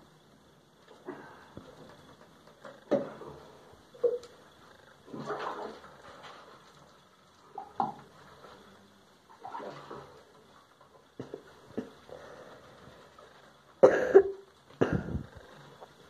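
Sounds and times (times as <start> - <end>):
water splashing: 5.1 - 6.0, 9.3 - 10.4.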